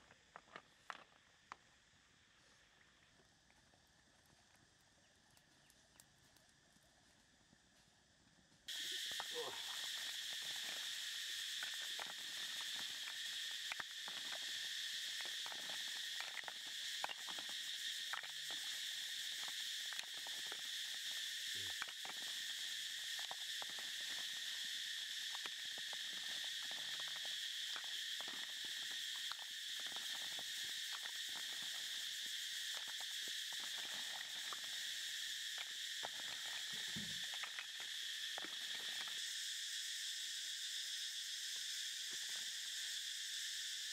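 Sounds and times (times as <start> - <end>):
high-pitched insect chorus: 0.0 - 43.9
faint clicks and ticks: 2.8 - 7.9.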